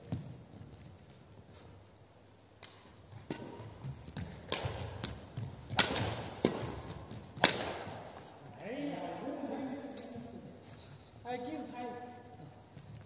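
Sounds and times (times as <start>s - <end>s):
rackets hitting shuttlecock: 2.6s - 8.6s.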